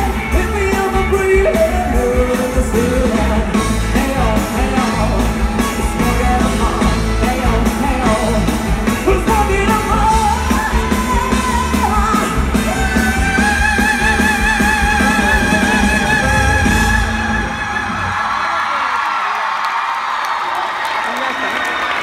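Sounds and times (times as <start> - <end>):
steady drum beat: 0.0 - 17.5
man singing: 0.0 - 18.4.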